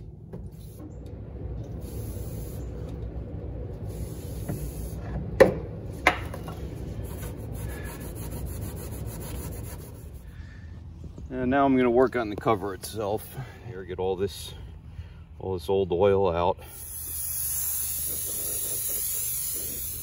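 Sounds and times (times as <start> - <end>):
aerosol spray hissing: 1.7 - 3.0, 3.8 - 5.0, 16.7 - 20.0
paper towel rubbing on metal: 7.0 - 10.2.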